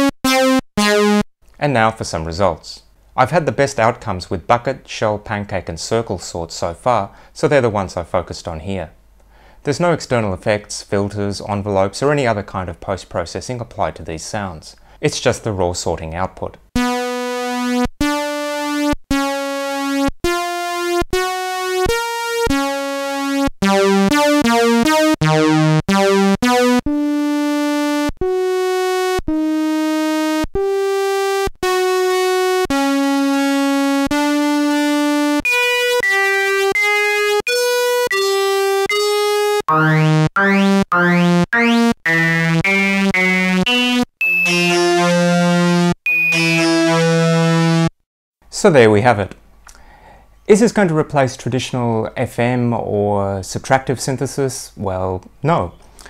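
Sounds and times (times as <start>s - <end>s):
bright brassy synthesizer notes: 0.0s - 1.3s, 16.8s - 48.0s.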